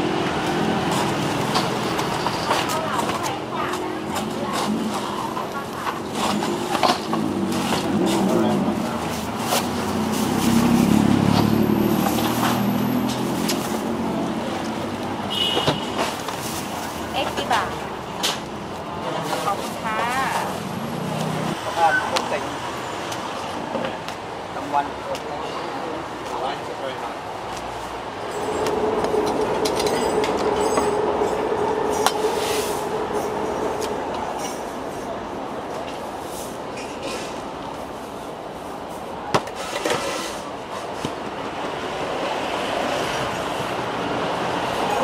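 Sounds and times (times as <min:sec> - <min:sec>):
road vehicle passing: 0:00.0 - 0:25.0, 0:25.7 - 0:39.1, 0:40.3 - 0:45.0
vehicle engine passing: 0:06.5 - 0:15.2, 0:27.8 - 0:36.5.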